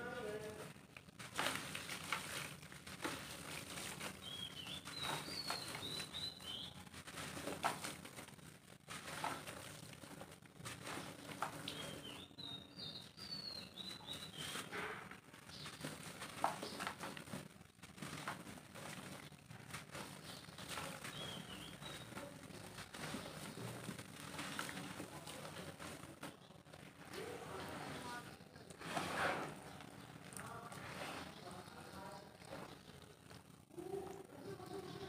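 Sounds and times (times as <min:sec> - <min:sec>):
soil pattering into water: 0:00.7 - 0:34.8
bird chirping: 0:04.2 - 0:06.9, 0:11.6 - 0:17.0, 0:20.0 - 0:23.8.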